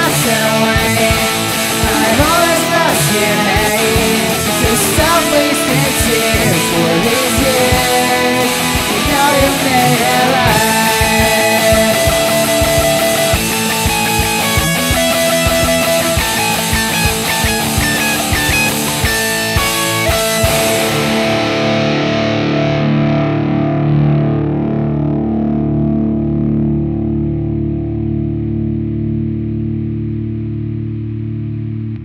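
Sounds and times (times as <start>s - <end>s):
drums: 0.0s - 24.4s
distorted electric guitar: 0.0s - 32.0s.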